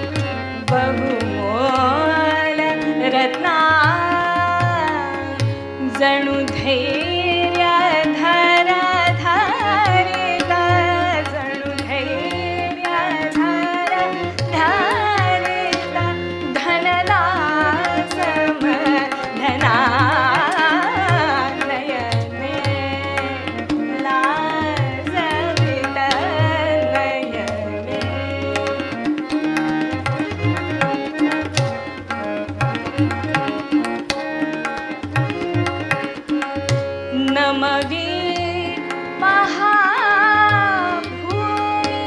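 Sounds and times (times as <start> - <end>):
organ holding steady notes: 0.0 - 1.0, 14.0 - 14.4, 15.0 - 16.5, 27.6 - 37.1
woman singing: 0.0 - 29.4, 37.1 - 42.0
tabla rhythm: 0.0 - 42.0.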